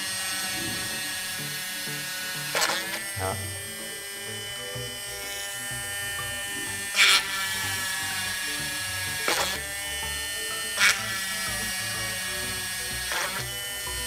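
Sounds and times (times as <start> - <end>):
drill bit grinding into board: 0.0 - 14.0
mini hand drill whining: 0.0 - 14.0.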